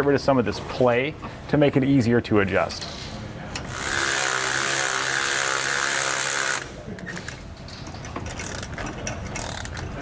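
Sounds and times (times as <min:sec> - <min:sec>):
cordless ratchet running: 0:03.7 - 0:06.8, 0:08.3 - 0:09.9.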